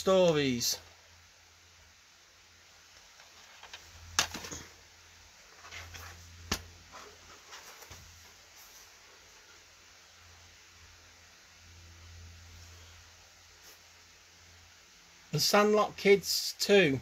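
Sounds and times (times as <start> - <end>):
rustling: 2.9 - 9.9.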